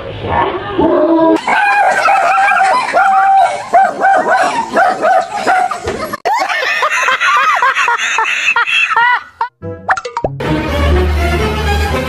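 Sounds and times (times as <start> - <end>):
dog yelping and barking: 1.4 - 6.0.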